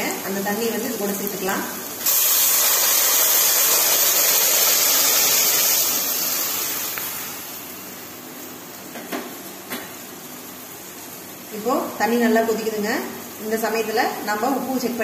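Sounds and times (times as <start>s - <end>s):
hot oil hissing and sizzling: 0.0s - 15.0s.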